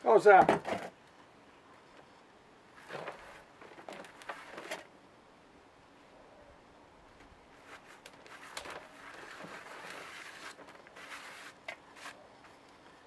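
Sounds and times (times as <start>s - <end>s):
gritty rustle of potting compost: 1.8s - 4.9s, 7.4s - 13.0s.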